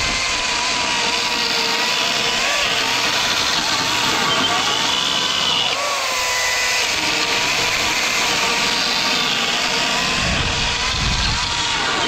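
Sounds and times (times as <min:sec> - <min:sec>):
chainsaw cutting wooden post: 0:00.0 - 0:12.0
electric chainsaw whining: 0:00.0 - 0:12.0.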